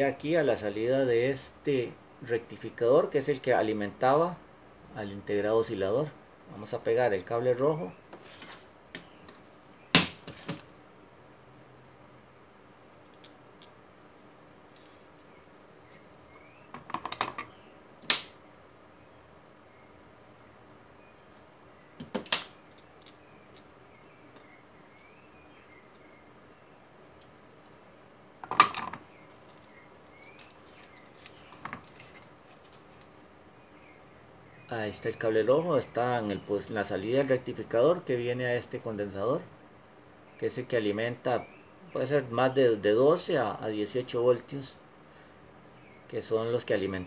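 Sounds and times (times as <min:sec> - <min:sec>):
object set down rattling: 0:28.4 - 0:29.7, 0:30.7 - 0:32.8.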